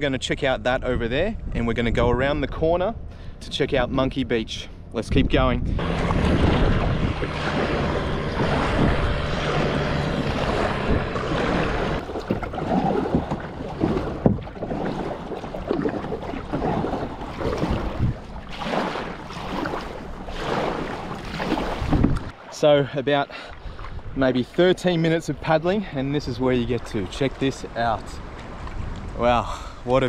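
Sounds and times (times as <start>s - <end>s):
wind buffeting microphone: 0.0s - 22.4s, 23.0s - 30.0s
low hum: 5.6s - 22.4s
paddle strokes splashing water: 5.8s - 25.2s.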